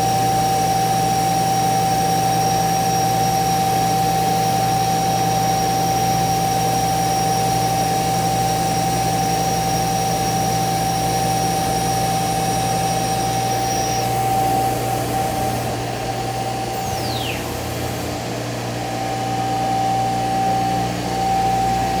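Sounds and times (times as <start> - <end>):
cnc router whirring: 0.0 - 22.0
dust extraction whine: 0.0 - 22.0
falling whine: 11.9 - 22.0.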